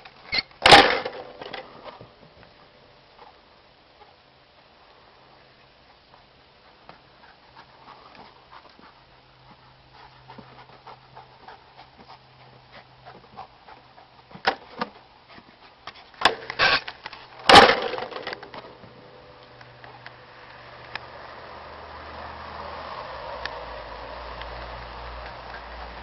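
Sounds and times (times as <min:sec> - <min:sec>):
dog panting: 0:05.9 - 0:16.2.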